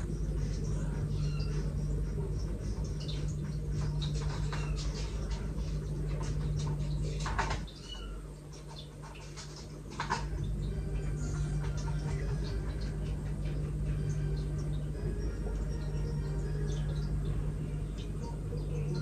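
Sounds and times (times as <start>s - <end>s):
low household hum: 0.0s - 19.0s
cat chirping meows: 1.1s - 1.7s, 7.7s - 8.4s.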